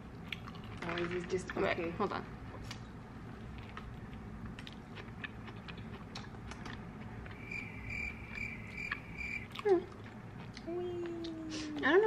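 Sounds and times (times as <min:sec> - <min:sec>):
chewing clicks: 0:03.6 - 0:07.4, 0:08.0 - 0:11.4
high beeps: 0:07.4 - 0:09.5.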